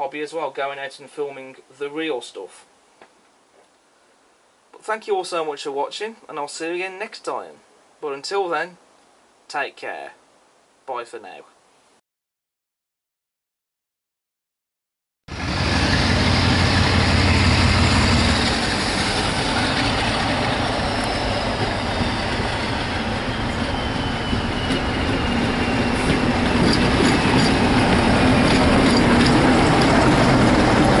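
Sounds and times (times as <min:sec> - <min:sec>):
diesel locomotive engine droning: 0:15.3 - 0:31.0
wheels clicking over rail joints: 0:24.2 - 0:31.0.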